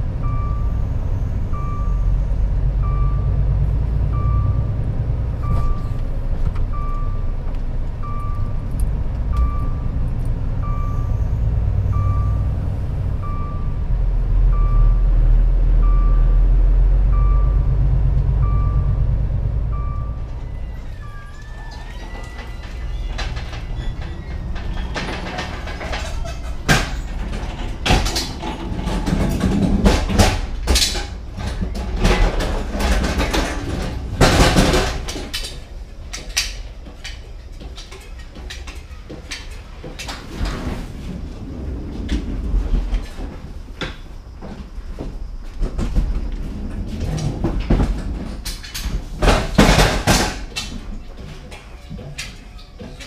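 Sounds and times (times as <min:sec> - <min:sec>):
pallet truck rolling rumble and rattle: 0:00.0 - 0:53.0
sharp clattering bangs: 0:22.0 - 0:35.6, 0:47.7 - 0:50.8.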